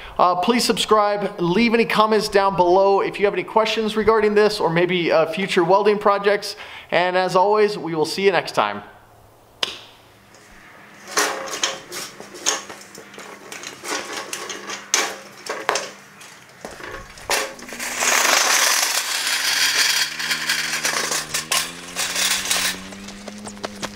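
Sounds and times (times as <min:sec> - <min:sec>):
wheels and boots crunching gravel: 0:10.2 - 0:23.9
cart wheels rolling on concrete: 0:10.3 - 0:23.9
footsteps: 0:10.3 - 0:23.9
metal frame clanking and rattling: 0:11.0 - 0:23.9.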